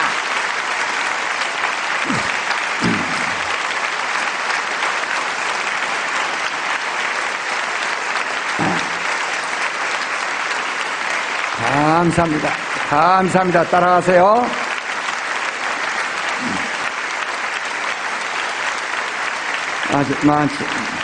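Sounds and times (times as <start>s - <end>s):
congregation applauding: 0.0s - 21.0s.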